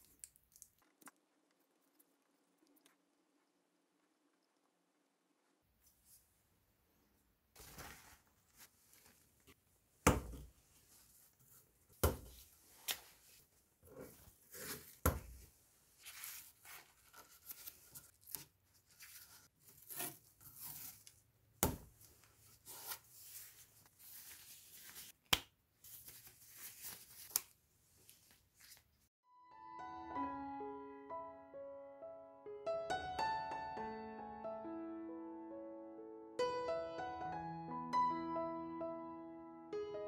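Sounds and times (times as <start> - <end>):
paper towel rustling: 7.6 - 9.6, 10.6 - 21.1, 22.0 - 25.2.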